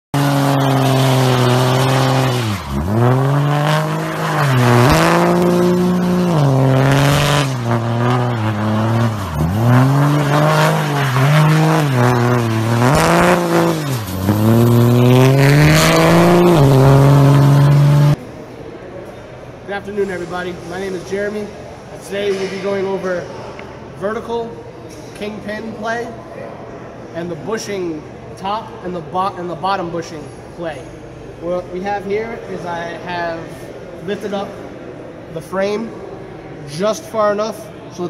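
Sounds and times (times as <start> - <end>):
truck engine revving: 0.1 - 18.2
spinning tires hissing: 0.2 - 18.2.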